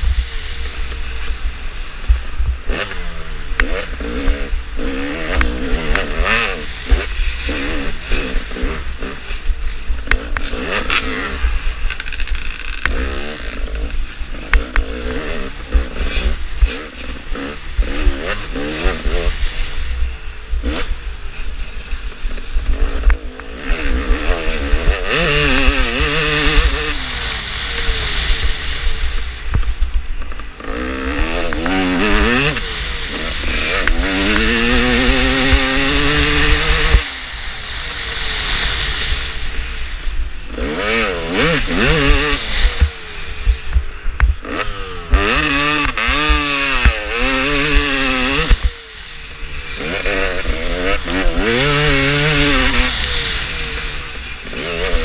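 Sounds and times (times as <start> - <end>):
wind rumble on microphone: 0.0 - 38.0
dirt bike engine revving: 0.0 - 55.0.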